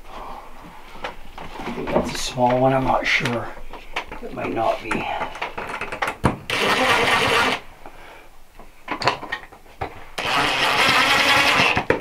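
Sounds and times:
cordless drill driving screws: 6.5 - 7.6, 10.2 - 11.9.

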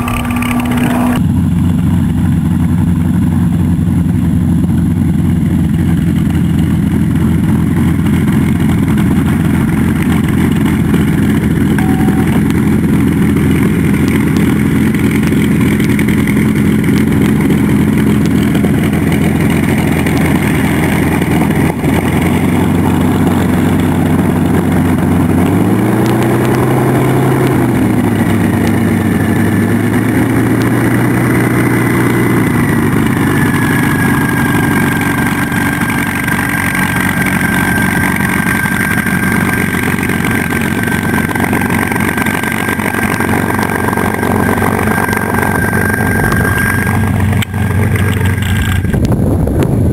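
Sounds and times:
thin high whine: 0.0 - 1.2, 10.3 - 23.1, 29.2 - 49.0
aircraft piston engine running: 0.0 - 49.9.

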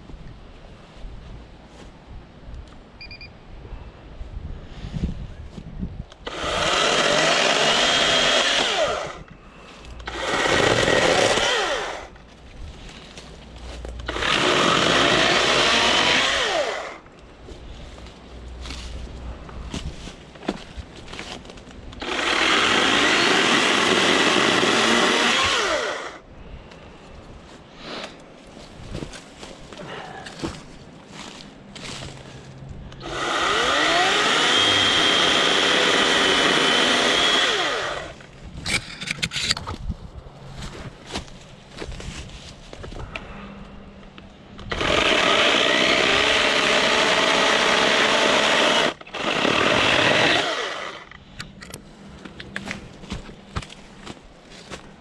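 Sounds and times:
chainsaw cutting wood: 6.2 - 9.2, 10.0 - 12.2, 14.0 - 17.0, 22.0 - 26.2, 33.0 - 38.2, 44.6 - 51.2.

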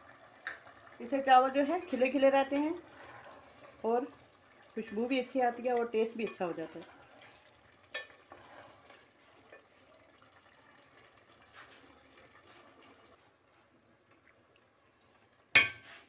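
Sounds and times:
food simmering and sizzling: 0.0 - 16.0
wooden spatula scraping pot: 1.8 - 3.8, 4.8 - 9.7.

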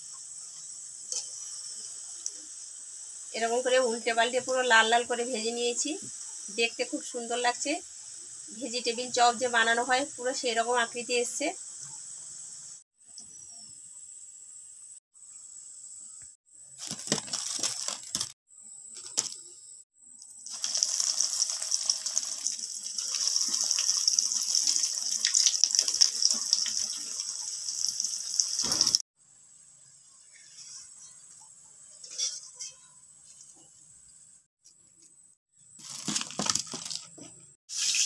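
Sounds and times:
oil sizzling and crackling: 0.0 - 13.1, 20.2 - 29.1, 37.7 - 38.0.

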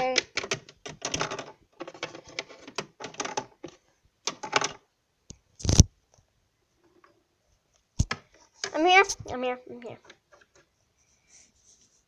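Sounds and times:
plastic toy clicks and taps: 0.0 - 4.8.

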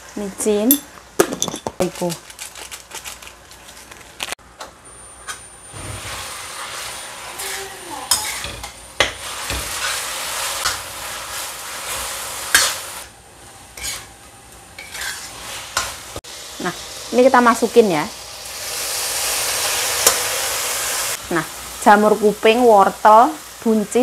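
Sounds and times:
beef sizzling in a wok: 5.5 - 24.0
metal spatula scraping a pan: 5.8 - 12.9, 13.7 - 14.1, 14.8 - 16.0.

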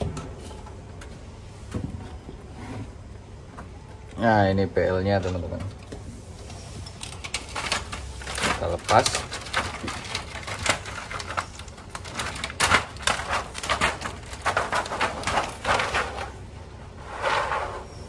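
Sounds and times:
plastic sheet crinkling: 7.0 - 16.4.

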